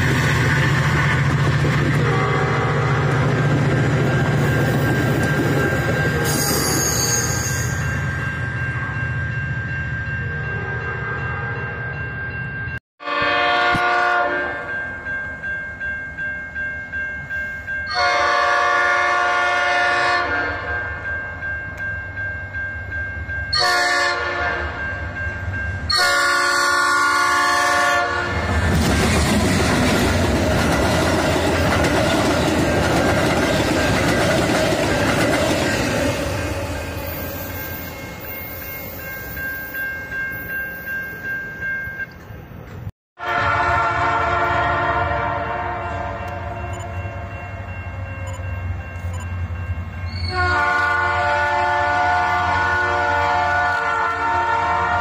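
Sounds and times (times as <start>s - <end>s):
train wheels rumbling on rails: 0.0s - 8.8s, 27.0s - 42.9s
crossing bell pulsing: 0.0s - 12.8s, 14.3s - 18.7s, 20.5s - 28.5s, 29.1s - 42.6s, 44.4s - 50.9s
train air horn blasts: 2.0s - 3.2s, 13.0s - 14.7s, 17.9s - 20.8s, 23.5s - 24.8s, 25.9s - 28.5s, 43.2s - 47.3s, 50.1s - 55.0s.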